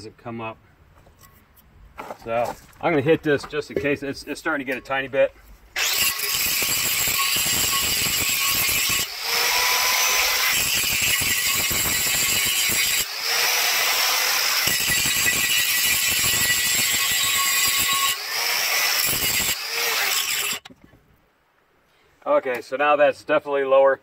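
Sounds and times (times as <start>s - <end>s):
angle grinder grinding metal: 5.8s - 20.7s.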